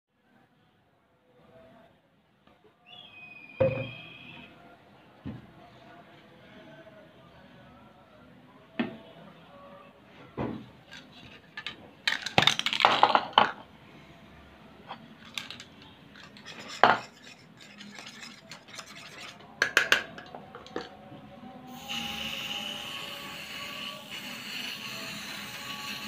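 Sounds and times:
spoon scraping ceramic bowl: 15.3 - 20.9.

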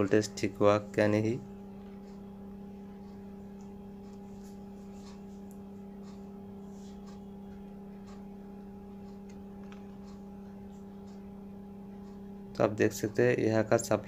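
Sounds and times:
electrical hum: 0.0 - 14.0
faint probe ticks: 5.0 - 8.3.

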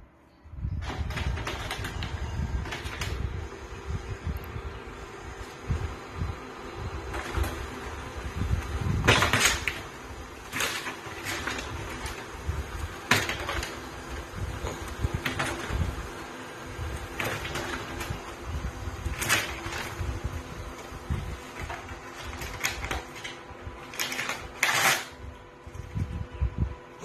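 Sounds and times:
steady mechanical hum: 0.0 - 27.0
paper crinkling and tearing: 21.8 - 25.2.

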